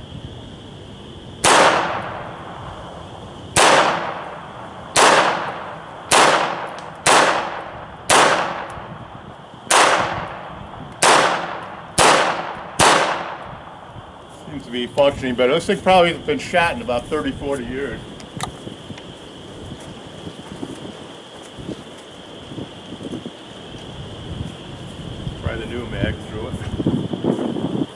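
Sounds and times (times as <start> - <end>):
pistol shots: 1.4 - 2.3, 3.5 - 8.8, 9.7 - 13.5.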